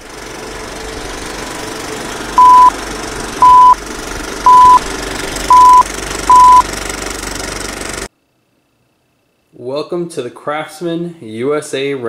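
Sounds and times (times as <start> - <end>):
steady background hum: 0.0 - 11.5
short high beeps: 2.4 - 2.7, 3.4 - 3.8, 4.5 - 4.8, 5.5 - 6.6.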